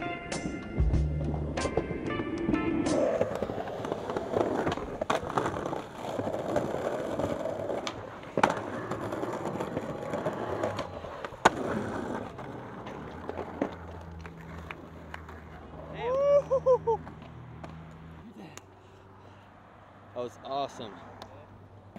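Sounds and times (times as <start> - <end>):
skateboard wheels rolling on pavement: 0.0 - 21.9
skateboard tail clacks and landings: 1.2 - 15.9.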